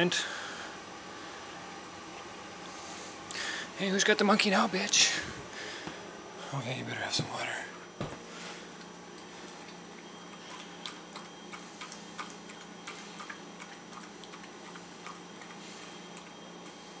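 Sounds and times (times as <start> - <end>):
dog lapping water: 9.6 - 16.0.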